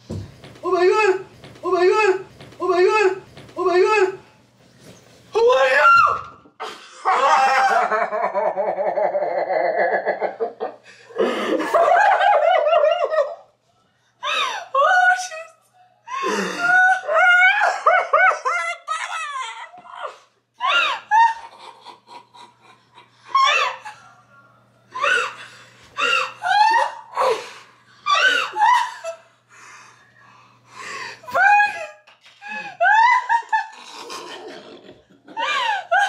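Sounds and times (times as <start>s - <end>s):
person laughing with shrieks: 23.3s - 24.0s, 32.5s - 34.4s.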